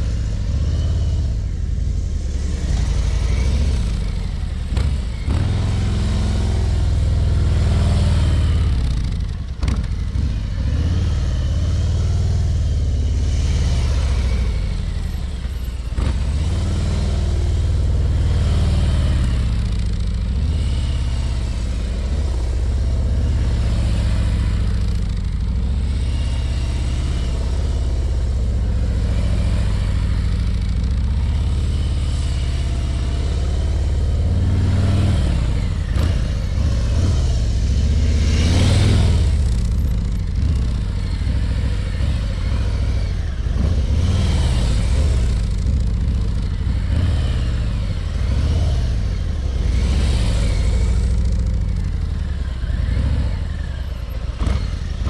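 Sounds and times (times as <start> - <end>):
motorcycle engine at low speed: 0.0 - 55.0.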